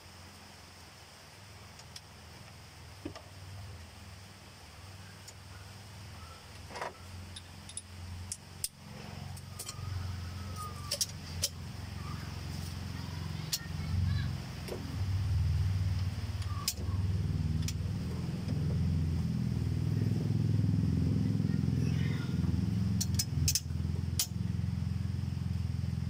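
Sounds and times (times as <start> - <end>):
vehicle engine rumbling: 0.0 - 26.0
sharp metallic clicks of socket: 23.0 - 24.3.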